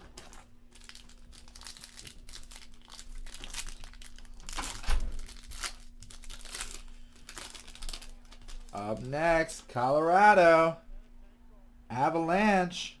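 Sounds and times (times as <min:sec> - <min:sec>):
foil wrapper crinkling and tearing: 0:00.0 - 0:09.1.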